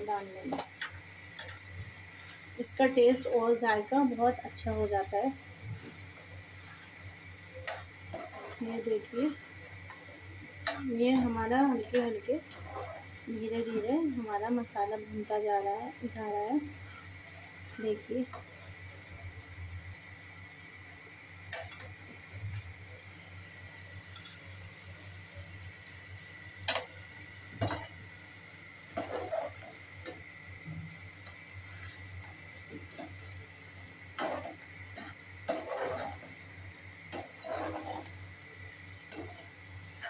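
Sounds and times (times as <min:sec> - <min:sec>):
sauce sizzling: 0:00.0 - 0:40.0
metal spatula scraping a pan: 0:06.6 - 0:09.4, 0:10.6 - 0:14.2, 0:28.9 - 0:30.2, 0:34.1 - 0:36.4, 0:37.1 - 0:38.2, 0:39.1 - 0:39.5.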